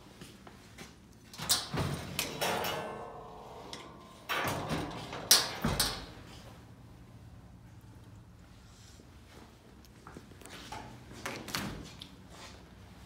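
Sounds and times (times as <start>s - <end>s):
oven door opening with clatter: 1.3s - 6.3s.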